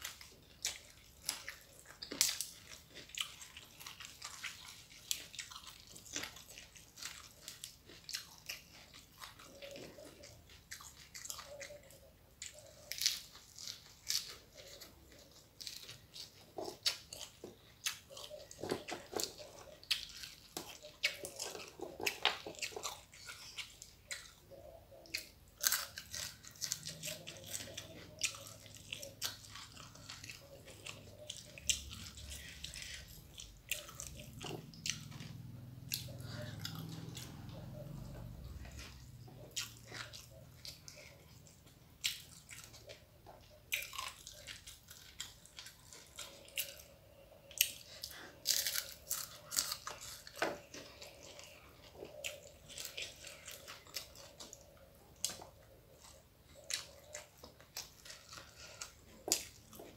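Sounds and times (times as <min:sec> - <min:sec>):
wet chewing: 0:00.0 - 0:59.9
crisp crunches: 0:47.6 - 0:59.9.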